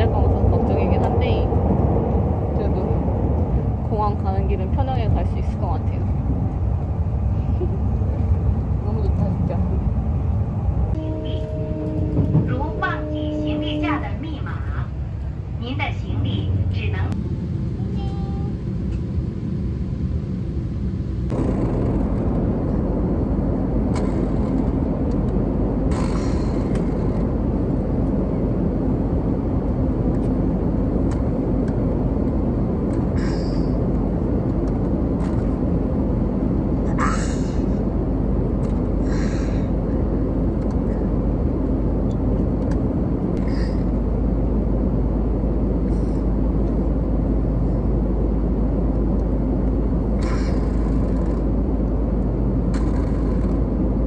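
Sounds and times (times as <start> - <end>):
jet airliner cabin rumble: 0.0 - 54.0.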